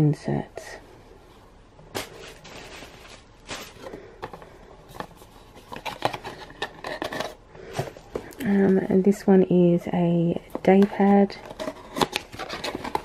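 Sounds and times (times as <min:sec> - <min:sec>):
cardboard boxes tapping and scraping: 0:02.0 - 0:08.9, 0:10.4 - 0:13.0.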